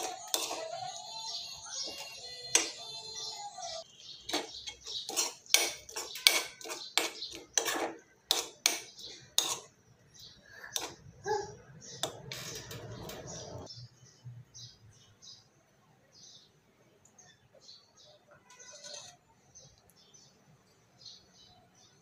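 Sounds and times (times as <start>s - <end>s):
spoon scraping a pot: 0.0s - 2.8s, 3.7s - 11.1s, 11.8s - 13.7s, 18.4s - 19.3s.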